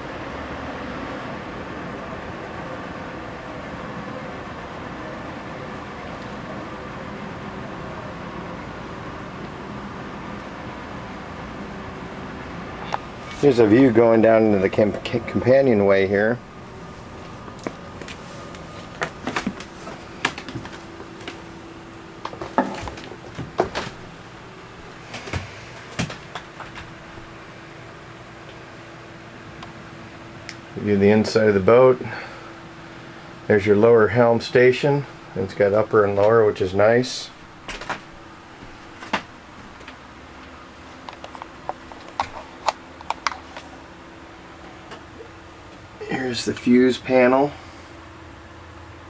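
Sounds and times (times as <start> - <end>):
faint steady hum: 0.0 - 49.0
footsteps on wooden steps: 17.6 - 21.4.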